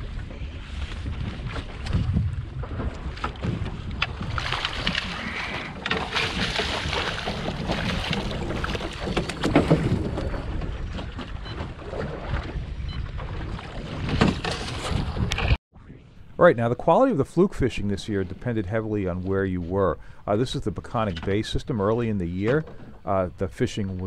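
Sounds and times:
wind on microphone: 0.0s - 5.9s, 7.2s - 16.2s
water splashing by a boat: 0.0s - 15.6s.

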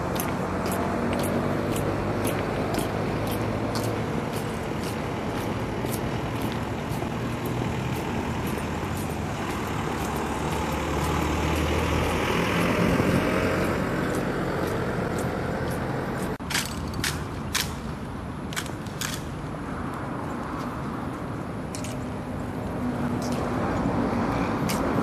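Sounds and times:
heavy vehicle engine rumble: 0.0s - 19.3s
low traffic hum: 0.0s - 25.0s.

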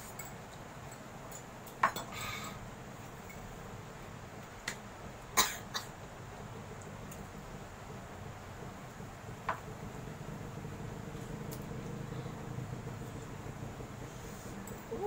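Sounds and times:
person coughing: 5.4s - 5.9s.

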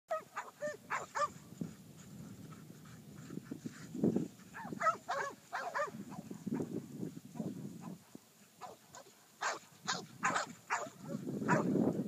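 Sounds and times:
dogs barking: 0.1s - 1.4s, 4.5s - 6.7s, 8.6s - 11.7s.

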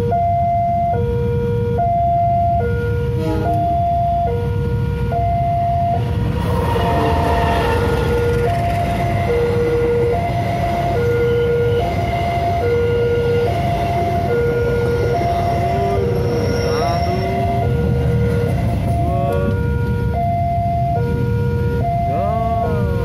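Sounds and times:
two-tone crossing alarm: 0.0s - 23.0s
train rumbling on rails: 3.1s - 21.4s.

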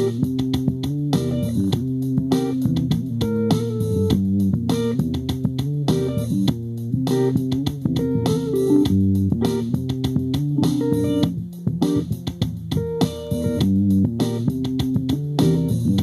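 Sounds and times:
bass guitar: 0.0s - 16.0s
plucked electric guitar: 0.0s - 16.0s.

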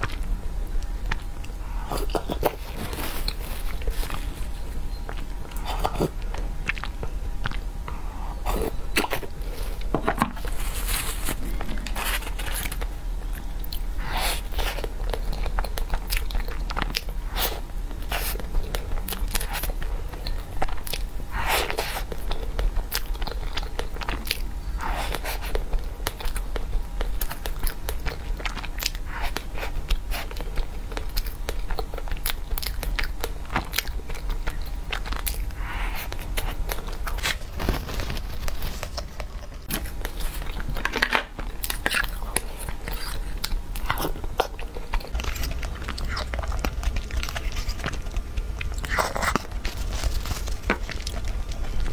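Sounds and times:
chewing pastry: 0.0s - 51.9s.

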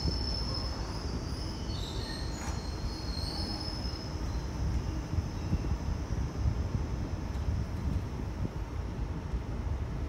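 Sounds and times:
high-pitched wheel squeals: 0.0s - 4.5s
train wheels rumbling: 0.0s - 10.0s.

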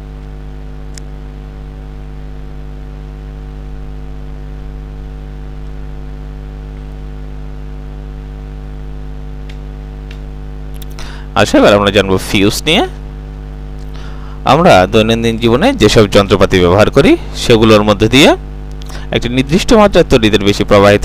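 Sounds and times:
low electrical hum with tones: 0.0s - 21.0s
faint click: 0.2s - 1.1s.

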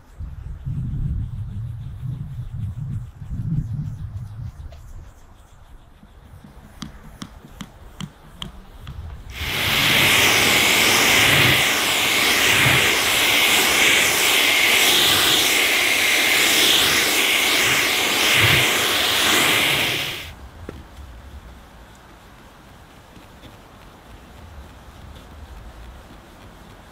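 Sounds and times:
pressure washer spraying: 9.3s - 20.4s.

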